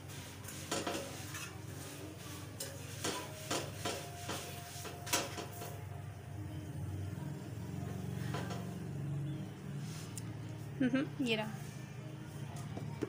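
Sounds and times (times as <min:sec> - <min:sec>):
metal spatula scraping a griddle: 0:00.1 - 0:05.8.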